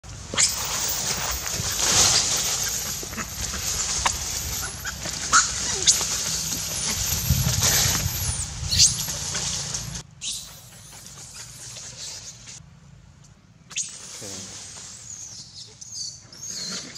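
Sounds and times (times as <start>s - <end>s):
monkeys squealing and screeching: 0.3s - 9.5s.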